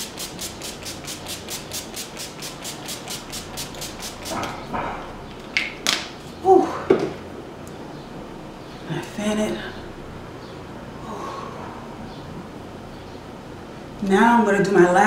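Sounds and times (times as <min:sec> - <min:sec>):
pump spray bottle spraying: 0:00.0 - 0:04.6.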